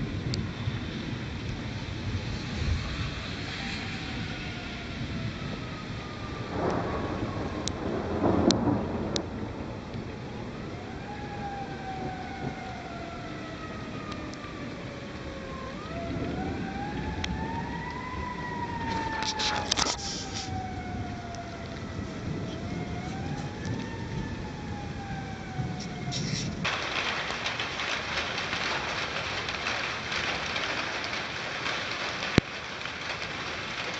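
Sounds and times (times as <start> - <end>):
crackling thunder burst: 0.0 - 33.9
thunder rumbling: 0.0 - 33.9
siren wailing: 0.4 - 26.7.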